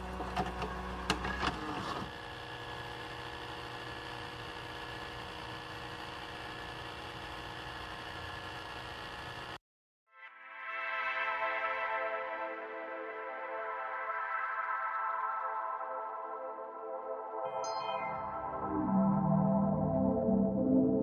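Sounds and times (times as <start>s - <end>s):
tape playback hum and hiss: 0.0s - 2.1s
tape mechanism clicking and whirring: 0.0s - 9.6s.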